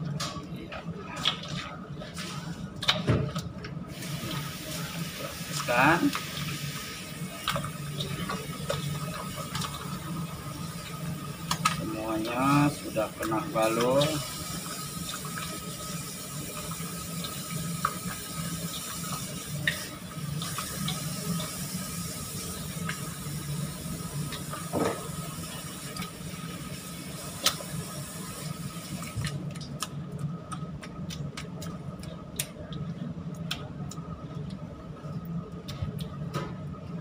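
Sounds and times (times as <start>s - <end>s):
steady low hum: 0.0s - 37.0s.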